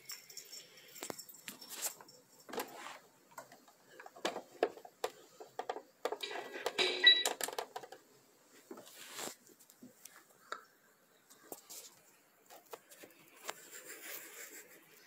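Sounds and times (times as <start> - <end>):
rustling: 8.5 - 10.3.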